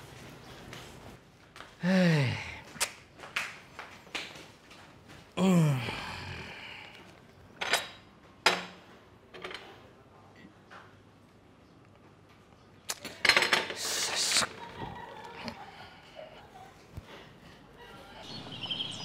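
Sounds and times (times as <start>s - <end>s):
low groaning voice: 1.8s - 2.7s, 5.4s - 7.1s.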